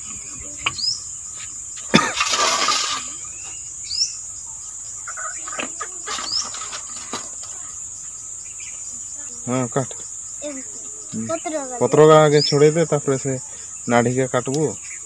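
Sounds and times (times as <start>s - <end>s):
stalks rustling: 0.0s - 3.6s, 5.3s - 7.9s
crickets chirring: 0.0s - 15.0s.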